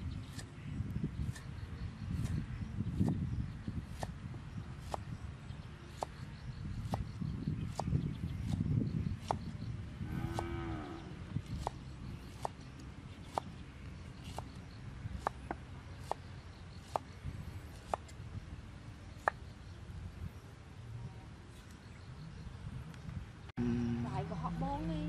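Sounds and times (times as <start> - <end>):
cow mooing: 10.0 - 11.2, 23.6 - 25.0.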